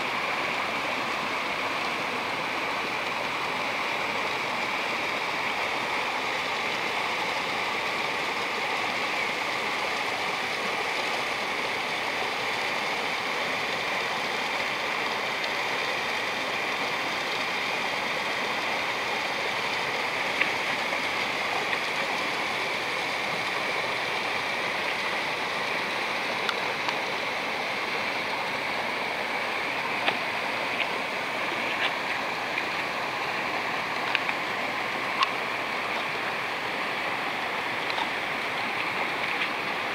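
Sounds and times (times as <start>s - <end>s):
stream rushing over stones: 0.0s - 39.9s.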